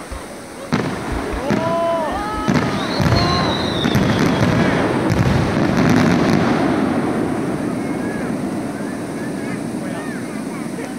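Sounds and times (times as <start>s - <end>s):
fireworks bangs: 0.0s - 10.9s
fireworks crackle: 0.0s - 10.9s
falling whistle: 2.0s - 4.6s.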